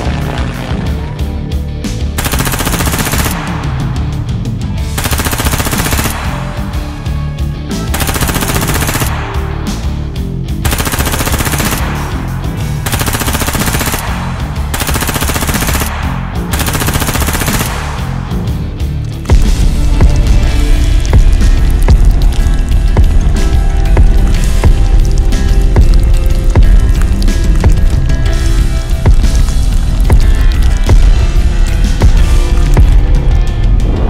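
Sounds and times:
music with pulsing bass: 0.0s - 34.0s
machine-gun fire: 2.2s - 3.9s, 5.0s - 6.6s, 7.9s - 9.4s, 10.6s - 18.2s.

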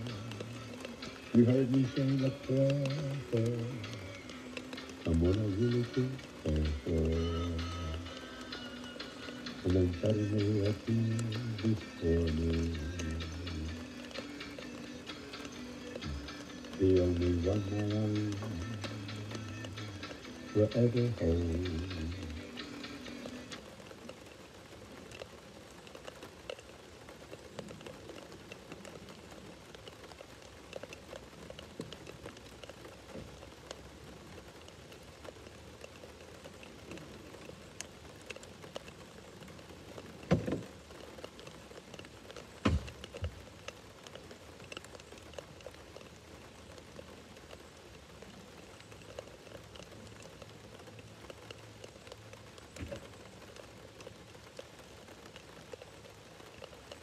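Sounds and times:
drops ticking: 0.0s - 57.0s
steady rain: 0.0s - 57.0s
sharp knocks: 42.6s - 42.9s.

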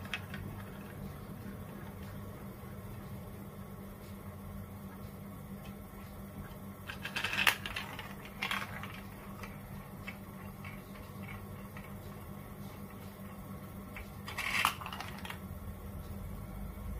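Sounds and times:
low steady hum: 0.0s - 16.9s
marble rolling through plastic run: 6.9s - 12.2s, 14.2s - 15.4s.

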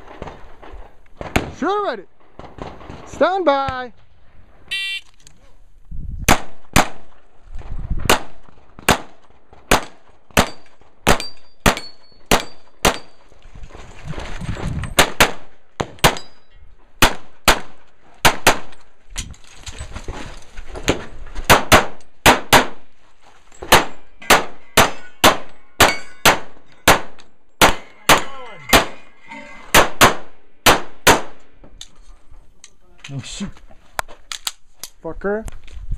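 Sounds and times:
rapid handgun fire: 6.3s - 7.1s, 8.1s - 13.1s, 15.0s - 16.2s, 17.0s - 18.7s, 21.5s - 22.8s, 23.7s - 28.9s, 29.8s - 31.4s
metallic clangs on steel targets: 10.3s - 13.3s, 16.0s - 16.7s, 23.5s - 30.2s.

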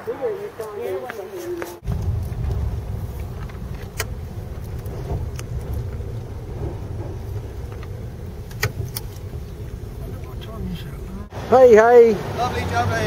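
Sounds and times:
engine and road rumble in car cabin: 1.8s - 13.0s
sharp clicks: 2.0s - 6.7s, 7.4s - 10.4s.

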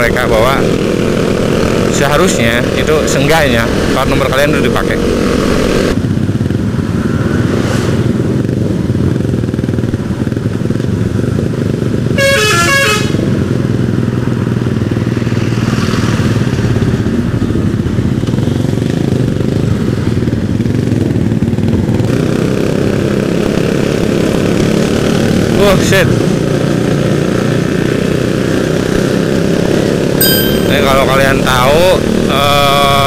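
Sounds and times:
motorcycle engine running: 0.0s - 7.2s, 8.2s - 12.2s, 12.9s - 25.5s, 26.2s - 33.0s
multi-note air horn: 12.2s - 13.2s.

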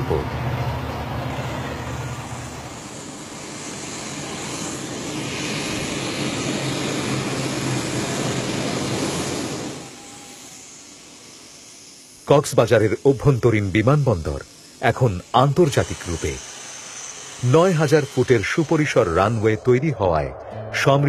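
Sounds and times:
airplane engine rushing: 0.0s - 21.0s
faint hiss: 1.2s - 19.8s.

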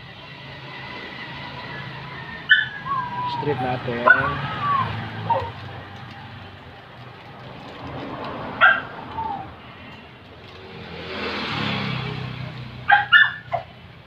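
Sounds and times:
vehicle passing by: 0.0s - 14.0s
dog barking: 4.0s - 4.4s, 8.6s - 8.9s, 12.9s - 13.7s.

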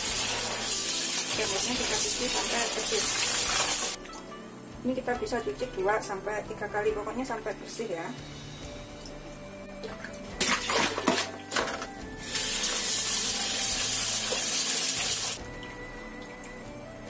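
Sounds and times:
water splashes: 0.0s - 4.0s, 9.8s - 15.4s.

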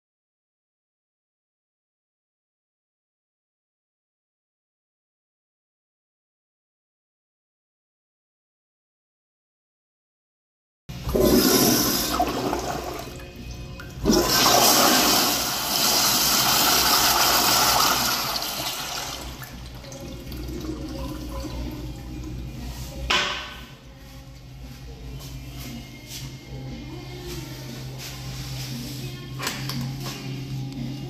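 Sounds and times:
toilet flushing water rush: 11.0s - 13.2s, 14.0s - 21.6s
toilet refill running: 11.0s - 22.1s.

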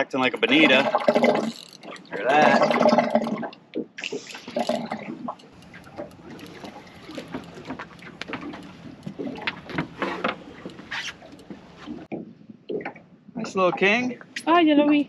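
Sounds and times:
fishing reel drag ticking: 0.4s - 2.2s, 4.3s - 11.8s.

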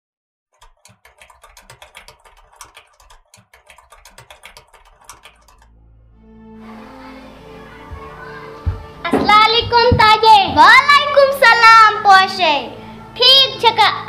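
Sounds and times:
keyboard key clicks: 0.6s - 5.7s.

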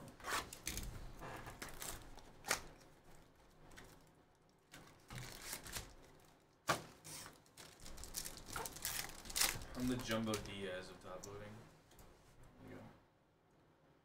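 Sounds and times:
rustling of cardboard and foil packs: 0.0s - 10.9s.

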